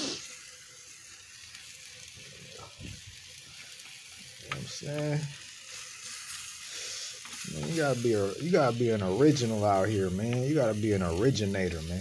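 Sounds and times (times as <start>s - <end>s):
rice sizzling in a pan: 0.0s - 12.0s
spatula scraping a pan: 5.7s - 8.0s.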